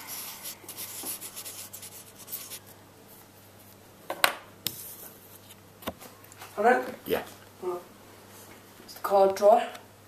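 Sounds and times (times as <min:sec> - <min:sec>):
pen scratching on card: 0:00.0 - 0:02.6.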